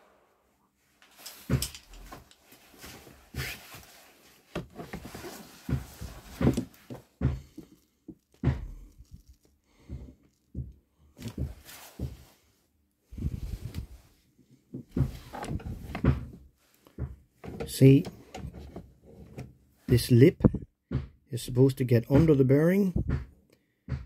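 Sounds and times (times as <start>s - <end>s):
rustling: 0.8s - 10.5s, 11.2s - 12.4s
metal knocks and clinks: 1.1s - 2.5s.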